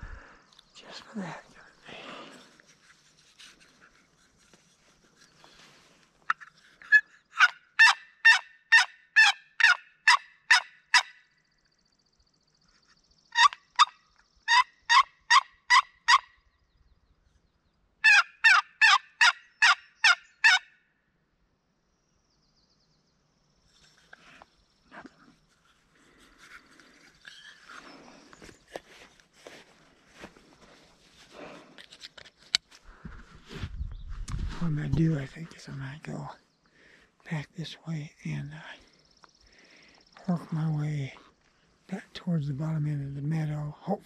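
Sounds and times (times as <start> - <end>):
turkey yelps: 6.8 - 11.1, 14.5 - 16.2, 18.0 - 20.7.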